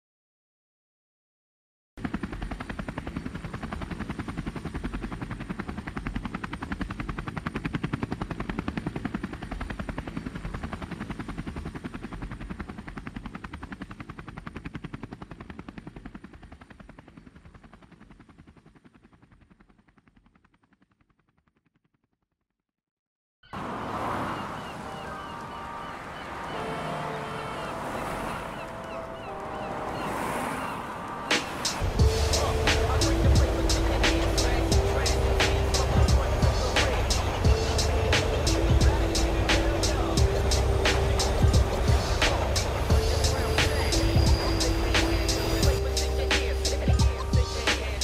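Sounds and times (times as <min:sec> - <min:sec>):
rapid fluttering pulse: 0:02.0 - 0:21.9, 0:26.4 - 0:48.0
low bass: 0:31.8 - 0:48.0.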